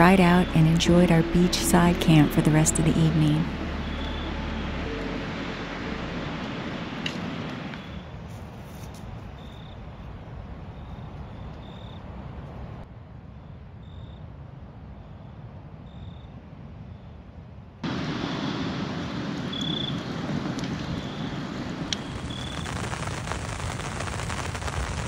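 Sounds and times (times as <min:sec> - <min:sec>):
cricket chirping: 0:03.6 - 0:04.9, 0:07.7 - 0:08.2, 0:08.9 - 0:12.6, 0:13.3 - 0:17.3, 0:19.5 - 0:20.1, 0:21.0 - 0:21.4, 0:22.0 - 0:23.9
wood fire crackling: 0:17.8 - 0:25.0.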